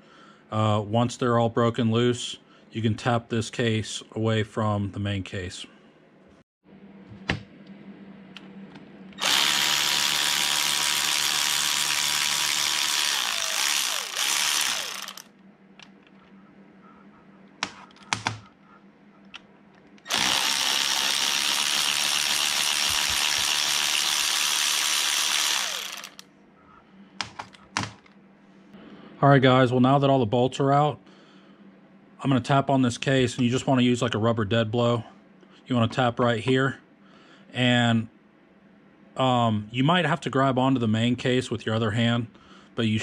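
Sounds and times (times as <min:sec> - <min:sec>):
power drill whining: 0:09.2 - 0:15.3, 0:20.1 - 0:26.2.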